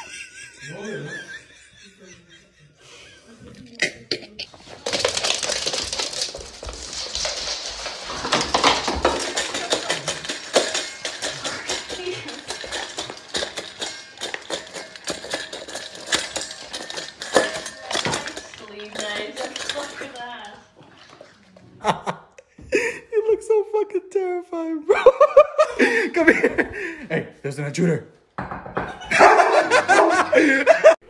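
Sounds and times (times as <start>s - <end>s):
metal dog bowl clinking: 4.6s - 21.3s.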